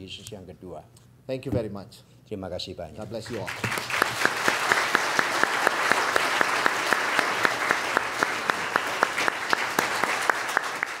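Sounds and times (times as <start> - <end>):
congregation applauding: 3.2 - 11.0
nearby hands clapping steadily: 3.3 - 11.0.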